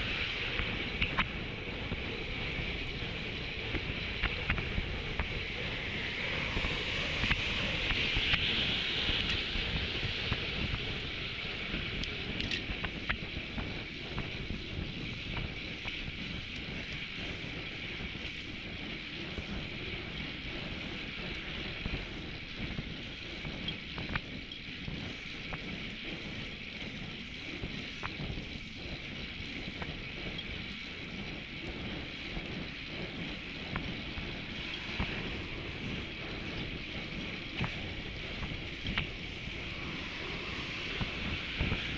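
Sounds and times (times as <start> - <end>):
wind buffeting microphone: 0.0 - 41.9
tyres hissing on asphalt: 30.7 - 41.9.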